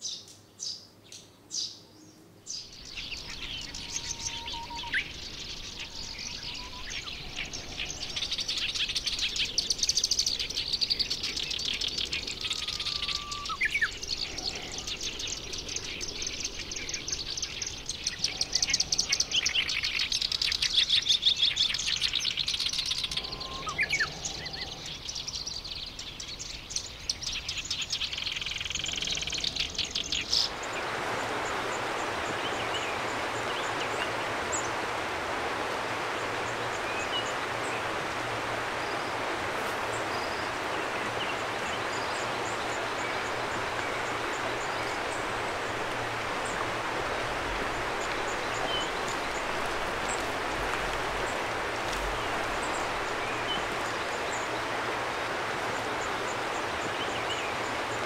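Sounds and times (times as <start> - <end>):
warbler chattering song: 2.5 - 30.8
steady rushing noise: 30.4 - 58.0.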